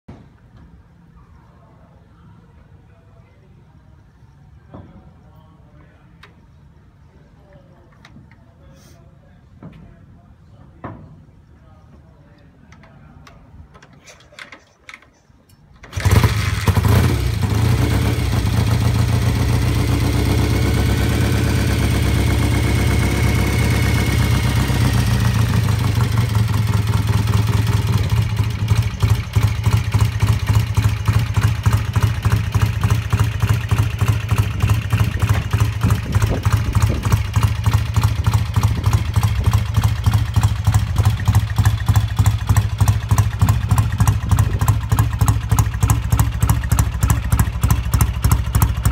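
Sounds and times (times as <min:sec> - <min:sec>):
motorcycle kick-start: 0:13.7 - 0:48.9
motorcycle engine idling: 0:15.8 - 0:48.9.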